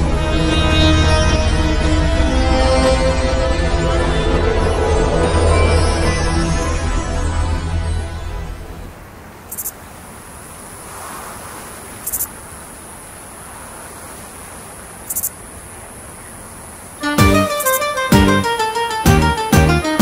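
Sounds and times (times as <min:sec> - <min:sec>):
music: 0:00.0 - 0:08.8, 0:17.0 - 0:20.0
steady hiss: 0:08.8 - 0:20.0
high insect trill: 0:09.4 - 0:20.0.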